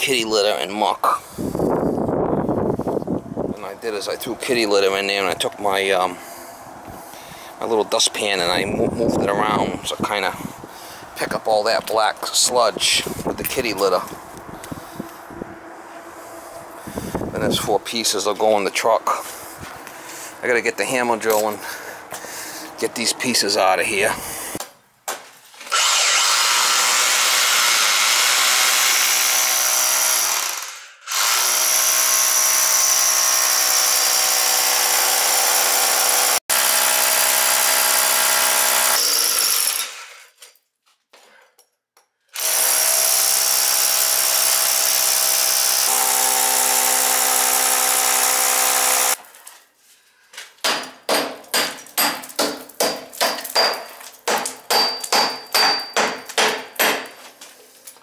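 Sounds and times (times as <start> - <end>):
hammer drill drilling into concrete: 25.7 - 40.3, 42.4 - 49.2.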